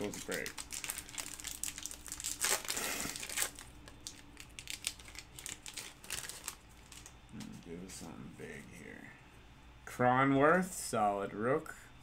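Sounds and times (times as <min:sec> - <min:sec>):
card pack wrapper tearing and crinkling: 0:00.0 - 0:07.2.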